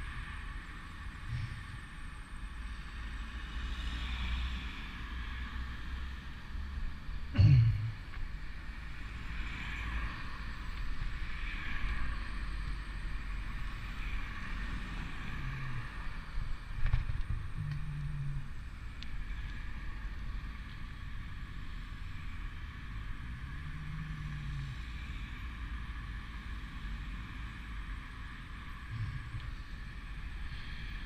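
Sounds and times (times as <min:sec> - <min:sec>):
passing car traffic: 0:00.0 - 0:31.0
wind rumbling on microphone: 0:09.1 - 0:31.0.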